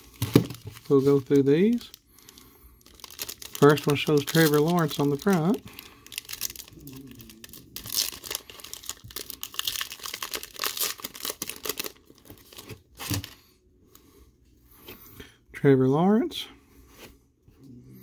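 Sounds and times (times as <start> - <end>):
cellophane crinkling and tearing: 0.0 - 13.4.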